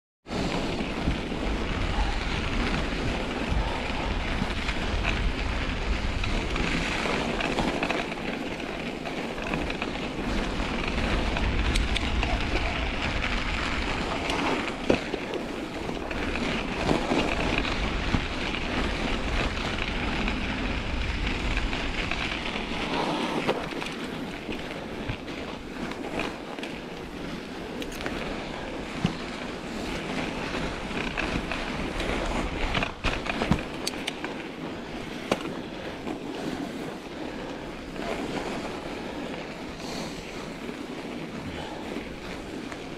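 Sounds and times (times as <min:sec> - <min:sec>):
tyre and wind noise: 0:00.2 - 0:42.9
bike knocking: 0:35.1 - 0:36.2.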